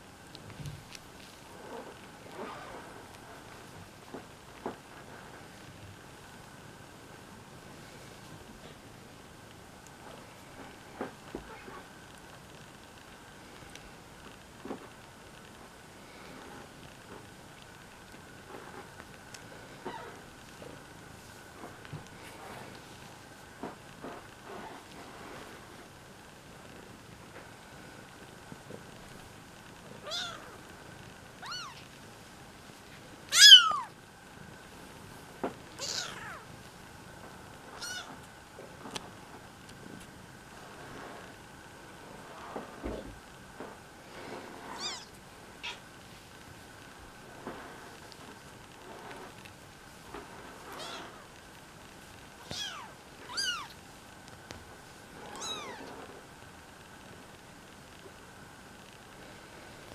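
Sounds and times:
kittens mewing: 0:30.0 - 0:30.5, 0:31.4 - 0:31.9, 0:33.3 - 0:33.9, 0:35.8 - 0:36.4, 0:37.8 - 0:38.2, 0:44.7 - 0:45.8, 0:52.5 - 0:53.8, 0:55.3 - 0:55.9.

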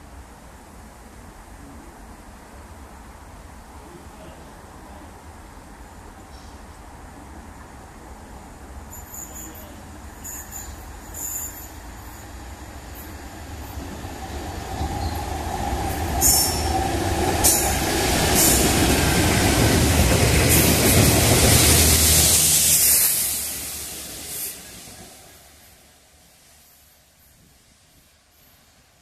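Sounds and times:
diesel locomotive engine drone: 0:00.1 - 0:27.8
train wheel noise: 0:08.6 - 0:28.5.

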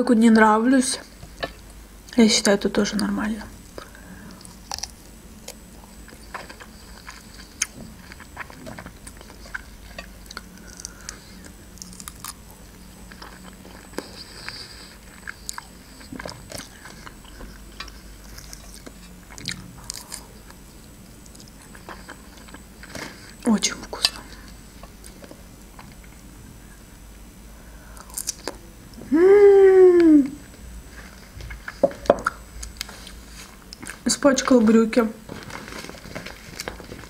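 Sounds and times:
person chewing strawberries: 0:02.9 - 0:26.3, 0:27.6 - 0:29.0, 0:30.9 - 0:34.0.

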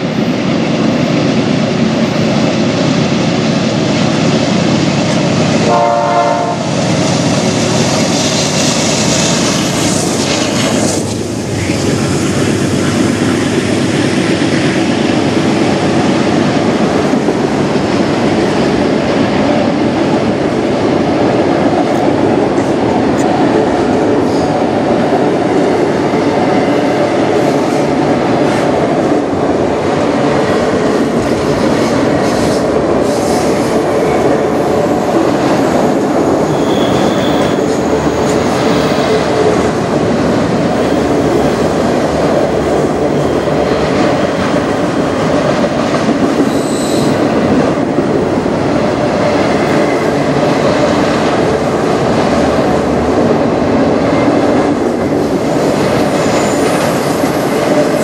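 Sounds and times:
train wheels clattering on rails: 0:00.0 - 0:58.0
train horn blast: 0:05.6 - 0:06.7.

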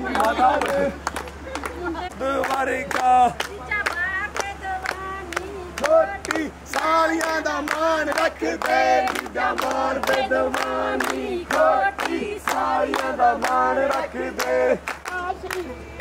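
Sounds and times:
group of voices singing: 0:00.0 - 0:01.0, 0:04.3 - 0:15.0
rhythmic hand-clapping: 0:00.0 - 0:16.0.

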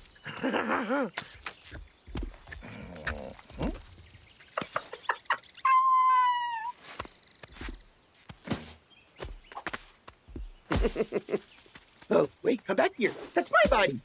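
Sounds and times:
high-pitched cartoon vocal cry: 0:05.6 - 0:06.8.

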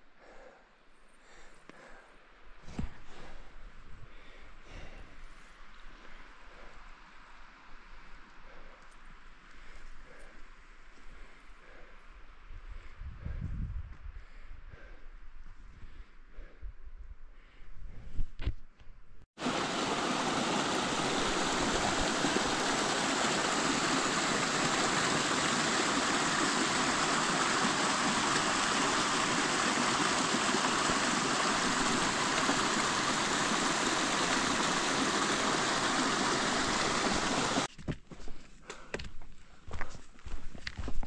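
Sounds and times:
stream cascading over rocks: 0:19.4 - 0:37.7.

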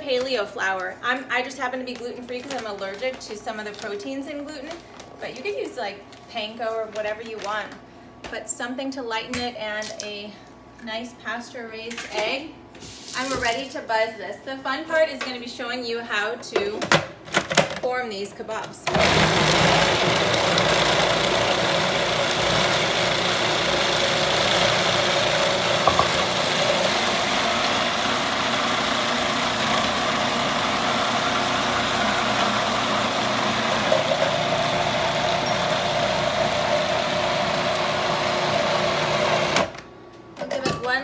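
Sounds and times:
food processor motor running: 0:18.9 - 0:39.8.

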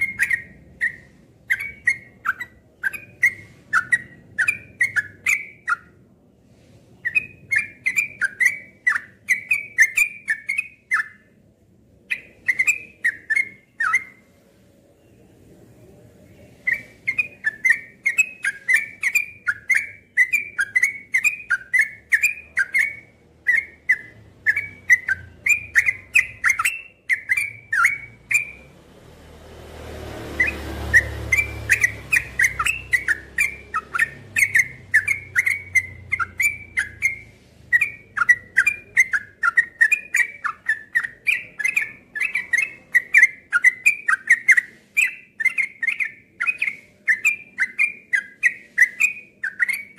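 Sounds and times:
bulbul singing chattering whistles: 0:00.0 - 0:06.0, 0:07.0 - 0:11.4, 0:12.1 - 0:14.3, 0:16.6 - 0:28.7, 0:30.2 - 0:49.9.

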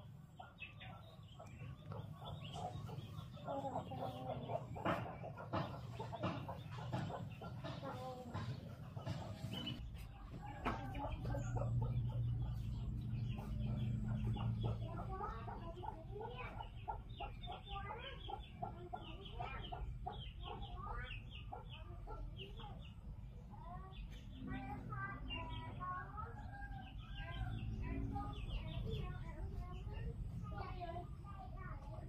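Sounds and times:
chickens clucking: 0:00.0 - 0:32.0
chicks peeping: 0:00.0 - 0:32.0.

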